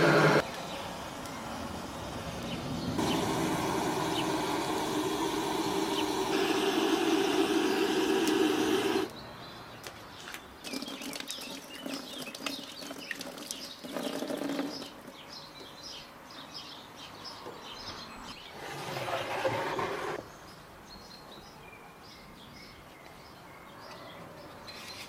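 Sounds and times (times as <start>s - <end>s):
gas torch rushing: 0.0s - 0.4s, 2.9s - 9.1s
birds chirping: 0.0s - 25.0s.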